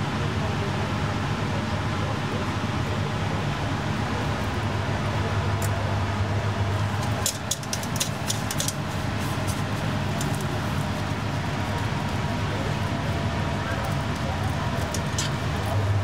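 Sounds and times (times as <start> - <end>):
low mechanical hum: 0.0 - 16.0
sharp clicks and clatters: 6.9 - 15.8.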